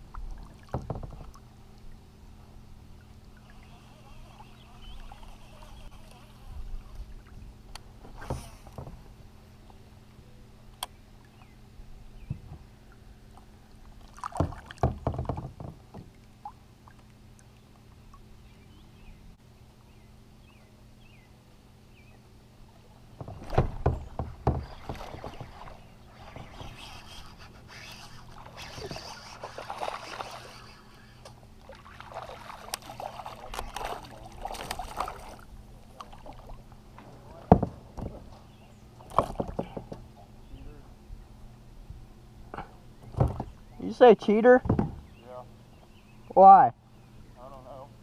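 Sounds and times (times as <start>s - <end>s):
water splashing around kayak: 0.0s - 9.2s, 12.1s - 18.3s, 22.6s - 39.9s
sharp knocks: 23.2s - 25.6s, 44.6s - 45.1s.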